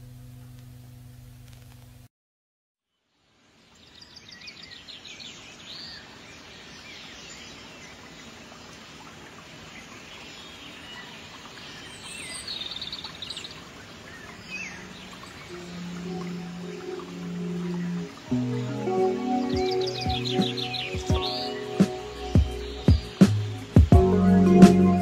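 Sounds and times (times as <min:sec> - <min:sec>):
outdoor ambience hiss: 0:00.0 - 0:02.1, 0:02.9 - 0:25.0
birds chirping and trilling: 0:03.7 - 0:25.0
low musical tones: 0:14.7 - 0:25.0.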